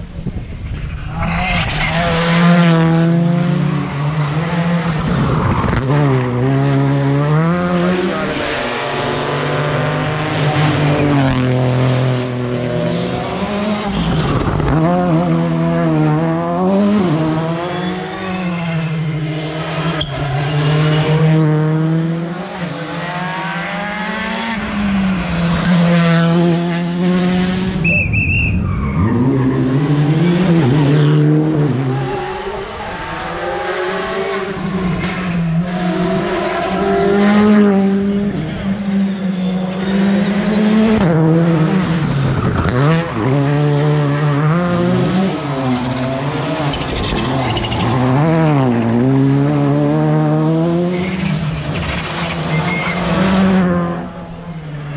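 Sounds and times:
rally car engines revving: 0.0 - 54.9
tyre squeal: 17.6 - 20.6, 27.8 - 29.7, 52.3 - 53.3
short high whistle: 27.8 - 28.8.

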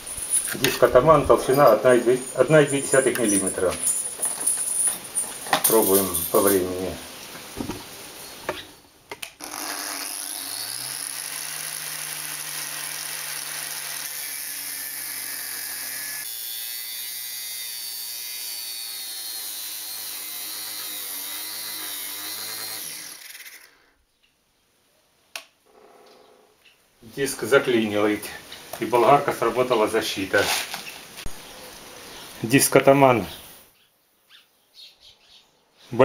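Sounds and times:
angle grinder cutting steel: 9.4 - 23.9.

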